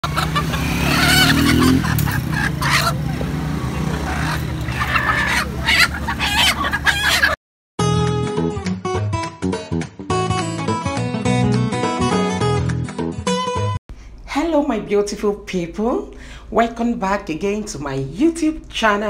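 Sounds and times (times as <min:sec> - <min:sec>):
chickens squawking and clucking: 0:00.0 - 0:07.4.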